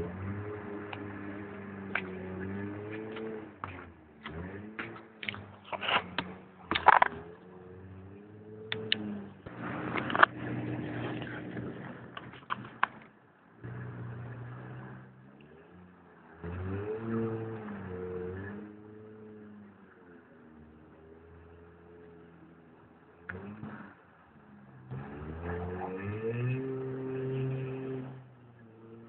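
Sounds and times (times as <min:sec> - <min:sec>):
engine knocks and clatter: 0:00.0 - 0:17.9
car engine revving: 0:00.0 - 0:29.0.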